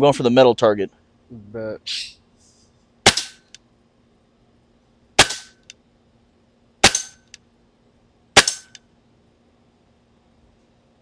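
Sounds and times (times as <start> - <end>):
air rifle shots cracking: 3.0 - 3.5, 5.2 - 5.7, 6.8 - 7.4, 8.4 - 8.8
pellet striking metal target: 3.0 - 3.5, 5.2 - 5.6, 6.8 - 7.3, 8.4 - 8.8.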